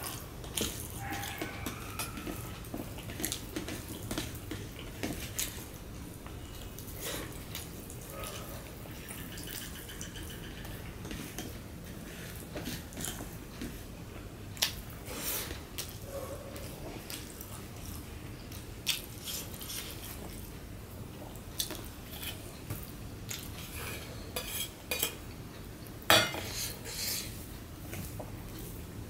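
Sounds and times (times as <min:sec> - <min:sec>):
fingers mixing food on metal plate: 0:00.0 - 0:06.8, 0:07.6 - 0:13.8.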